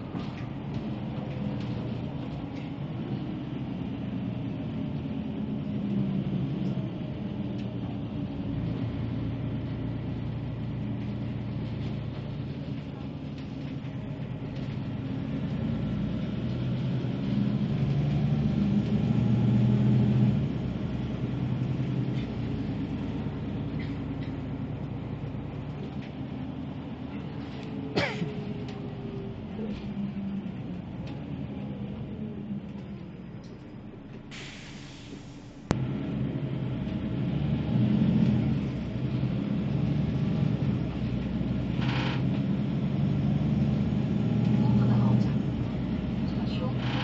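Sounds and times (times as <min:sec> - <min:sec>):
bus engine hum: 0:00.0 - 0:47.0
road noise: 0:00.0 - 0:47.0.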